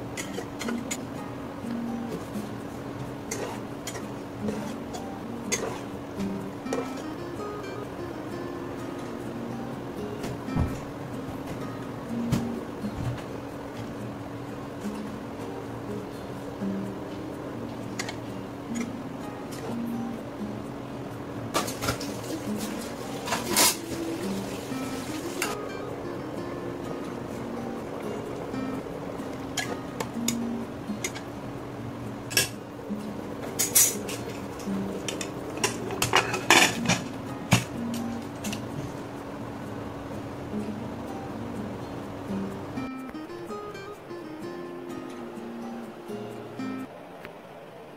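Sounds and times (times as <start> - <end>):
soft instrumental music: 0.0 - 47.0
spoon scraping metal pot: 5.5 - 5.9
pot lid clanking: 21.6 - 24.0, 35.1 - 37.7.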